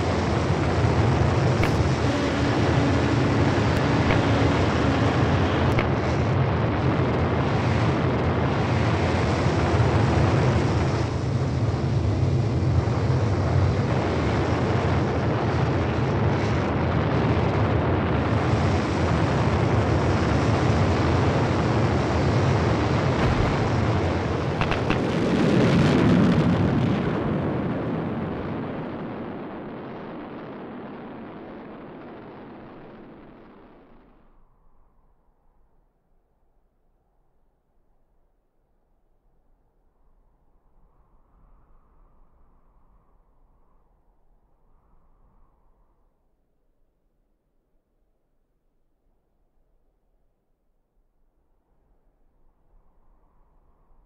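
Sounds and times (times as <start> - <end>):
rocket thruster roar: 0.0 - 9.6, 22.2 - 33.9.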